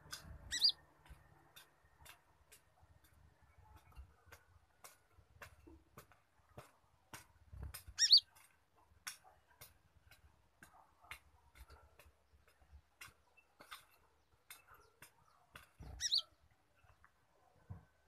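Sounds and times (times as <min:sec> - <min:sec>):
loud short bird chirp: 0:00.0 - 0:00.8, 0:08.0 - 0:08.2, 0:15.8 - 0:16.3
bird clicking ticks: 0:00.0 - 0:17.2.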